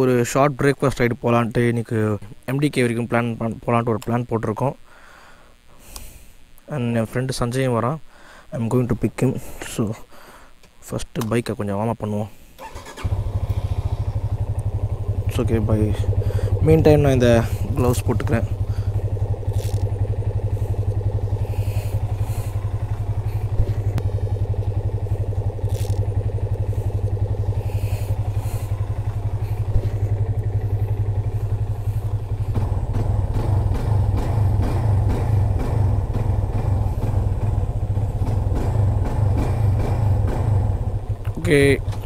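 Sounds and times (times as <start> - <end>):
motorcycle engine idling: 12.6 - 42.0
light engine knocks: 31.6 - 41.2.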